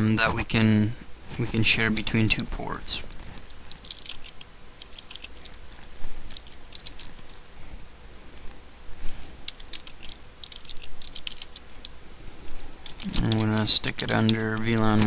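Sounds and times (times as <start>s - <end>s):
keyboard typing: 3.7s - 5.6s, 6.3s - 7.4s, 9.5s - 12.0s, 12.8s - 15.0s.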